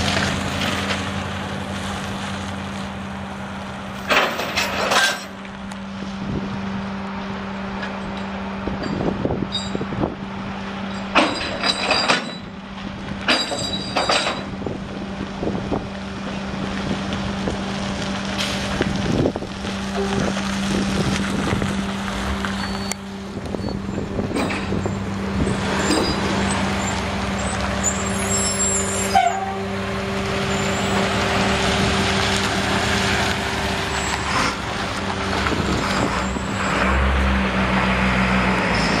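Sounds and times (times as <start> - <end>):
pickup engine running: 12.4 - 37.1.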